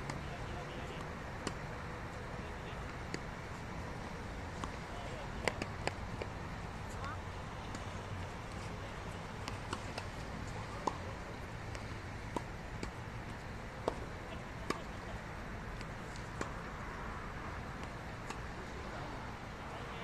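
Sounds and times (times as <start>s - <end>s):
tennis ball pops: 5.4s - 6.3s.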